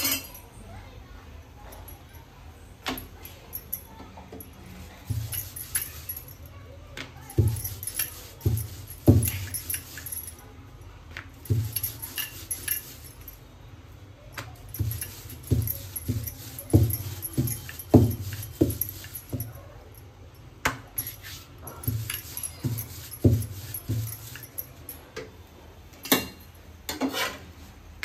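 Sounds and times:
metal bangles jingling: 3.0s - 6.6s, 7.2s - 10.6s, 11.3s - 13.5s, 14.6s - 25.1s
rolling pin thumping dough on counter: 7.0s - 10.0s, 14.4s - 19.5s, 20.6s - 24.4s.

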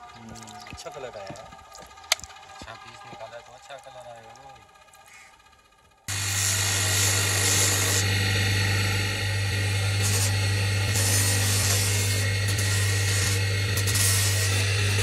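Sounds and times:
electric motor humming: 0.0s - 15.0s
stone rubbing on polishing wheel: 6.1s - 15.0s.

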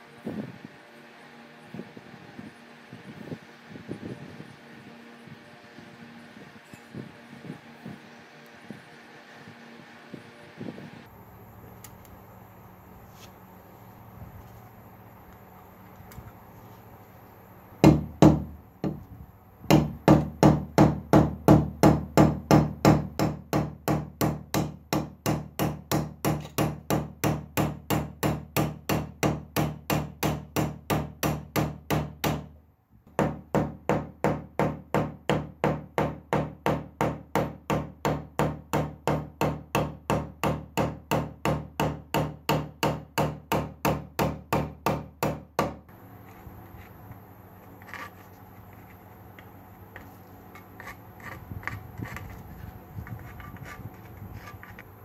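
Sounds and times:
hammer peening metal rivets: 19.7s - 32.5s.

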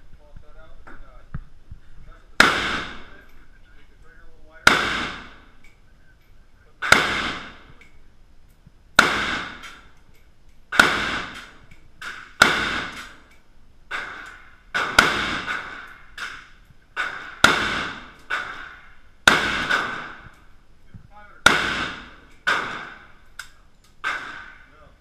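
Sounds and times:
rifle gunshots with echo: 2.4s - 3.2s, 4.6s - 5.6s, 6.7s - 7.8s, 9.0s - 10.0s, 10.7s - 13.3s, 13.9s - 20.5s, 21.4s - 23.2s, 24.0s - 24.9s
faint distant bangs: 8.9s - 25.0s.

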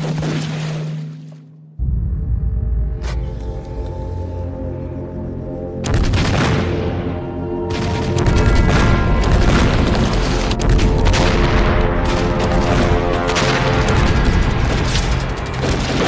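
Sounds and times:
dramatic orchestral score: 0.0s - 16.0s
grenade explosions: 5.8s - 16.0s.

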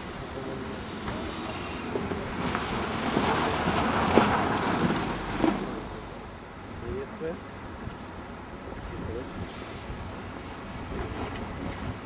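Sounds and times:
tyres spinning in snow: 0.0s - 5.8s.

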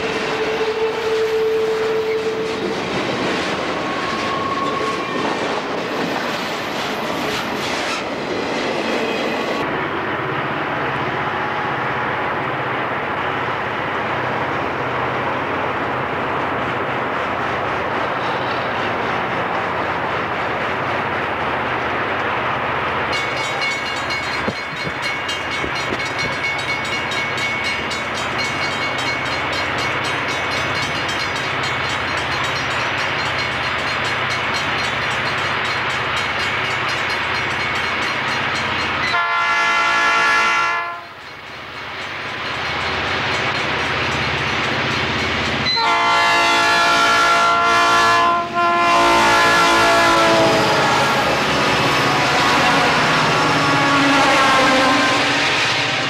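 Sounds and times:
locomotive air horn: 0.0s - 2.6s, 39.1s - 41.2s, 45.7s - 51.4s, 52.0s - 55.5s
diesel locomotive engine rumble: 0.0s - 56.0s.

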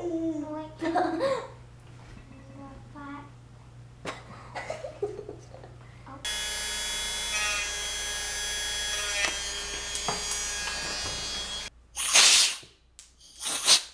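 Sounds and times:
rotary tool high whine: 6.3s - 11.7s.

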